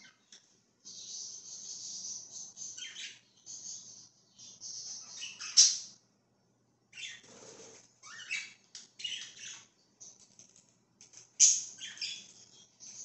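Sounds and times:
budgerigars chirping: 0.9 - 6.0, 7.0 - 9.7, 11.4 - 13.0.

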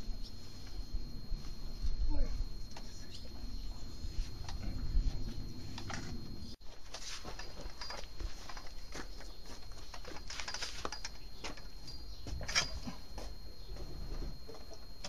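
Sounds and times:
birds chirping: 10.9 - 12.8.

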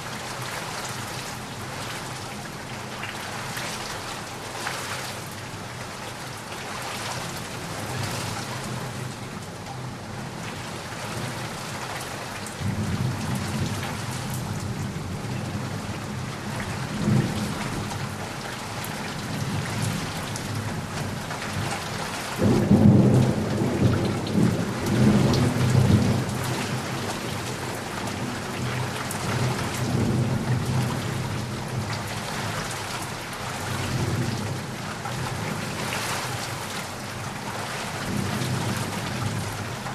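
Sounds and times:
heavy rain falling: 0.0 - 39.9
thunder rumbling: 22.4 - 31.8.

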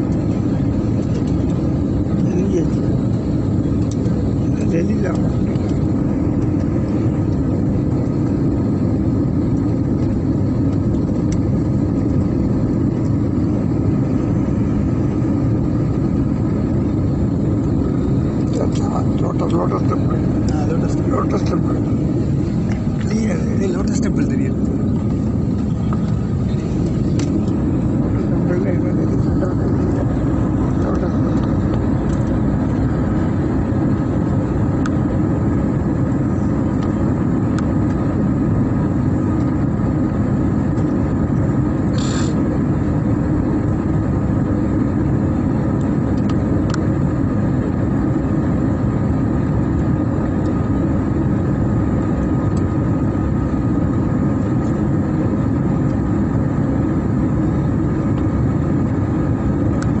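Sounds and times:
faint steady whine: 0.0 - 60.0
jet cabin engine rumble: 0.0 - 60.0
short high hiss: 41.9 - 42.4.

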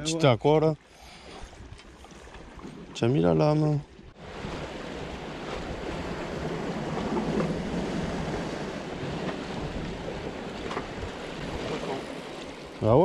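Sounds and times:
wind buffeting microphone: 4.2 - 12.4.

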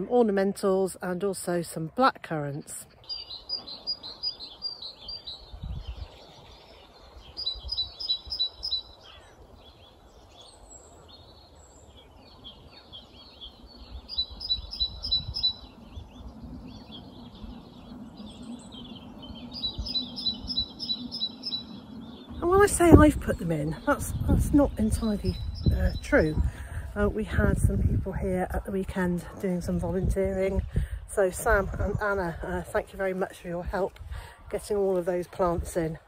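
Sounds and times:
low rumble of wind: 0.0 - 36.0
songbirds singing: 0.0 - 36.0.

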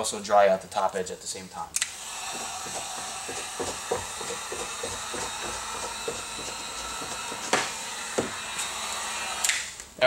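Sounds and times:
heat gun hissing: 1.8 - 9.8.

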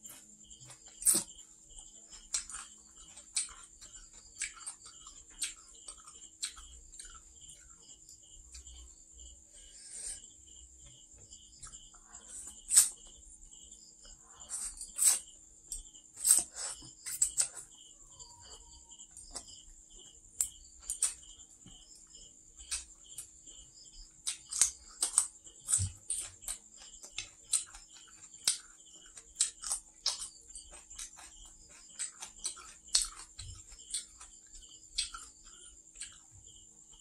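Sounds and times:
chewing with smacks and clicks: 0.0 - 37.0
high insect chirring: 0.0 - 37.0.

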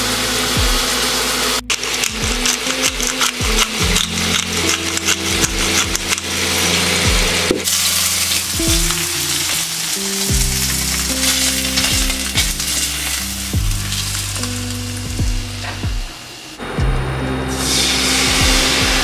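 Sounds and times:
background music with bass line: 0.0 - 19.0
fish sizzling in hot oil: 7.6 - 14.7.

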